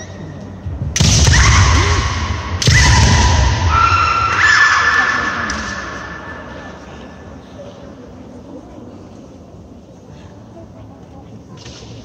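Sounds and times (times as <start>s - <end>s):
people shouting drawn-out yells: 1.2s - 6.4s.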